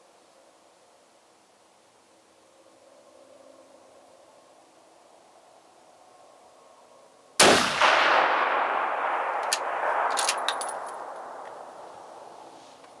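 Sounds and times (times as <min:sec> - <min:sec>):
rifle shot with echo: 0:07.4 - 0:12.4
sharp rifle clicks: 0:09.3 - 0:11.6.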